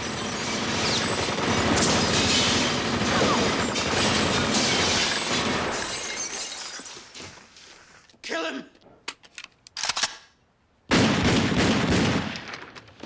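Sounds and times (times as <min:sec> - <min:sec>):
glass windows shattering: 0:00.2 - 0:07.1.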